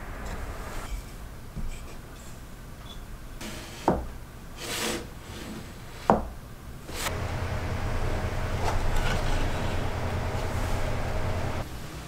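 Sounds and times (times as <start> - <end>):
wood sliding: 6.9 - 11.6.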